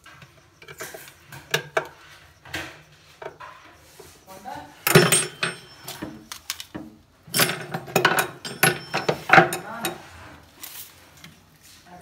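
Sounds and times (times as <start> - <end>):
metal tools knocking on wood: 4.8 - 10.1.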